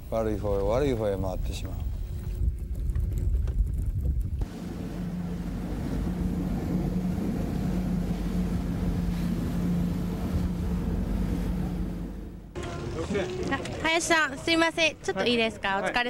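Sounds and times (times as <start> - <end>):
wind rumbling on microphone: 0.0 - 12.6
outboard engine drone: 0.0 - 13.8
water rushing: 4.4 - 14.2.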